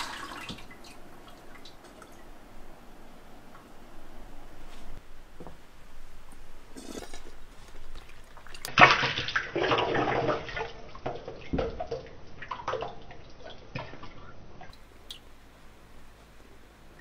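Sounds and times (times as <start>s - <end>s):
liquid clay splashing and dripping: 7.9s - 14.2s.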